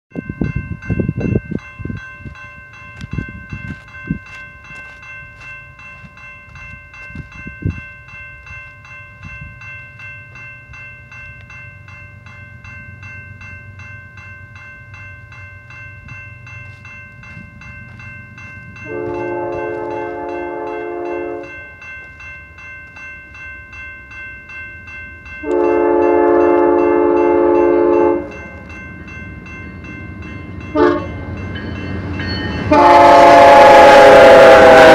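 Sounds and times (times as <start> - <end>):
crossing bell ringing: 0.1 - 34.9
train horn blasts: 18.8 - 21.6, 25.4 - 28.4, 30.7 - 31.3, 32.6 - 34.9.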